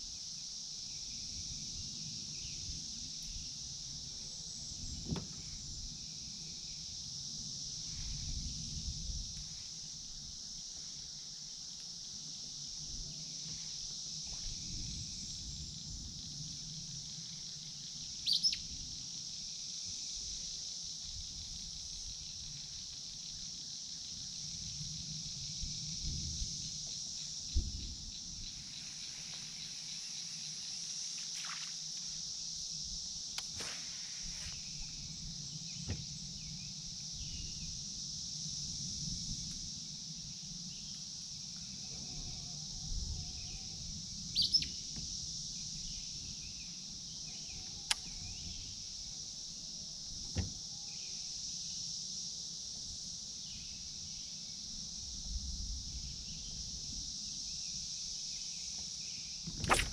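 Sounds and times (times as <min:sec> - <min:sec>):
high insect drone: 0:00.0 - 0:59.9
bird chirp: 0:18.2 - 0:18.6, 0:44.4 - 0:44.8.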